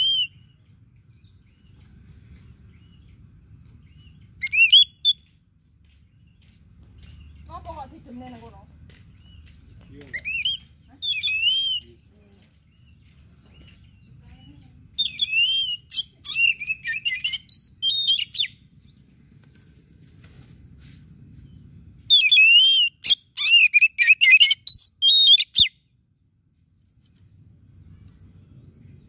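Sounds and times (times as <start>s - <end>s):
bird singing whistled phrases: 0.0s - 0.6s, 4.0s - 5.3s, 9.2s - 12.4s, 13.6s - 18.6s, 22.1s - 25.8s.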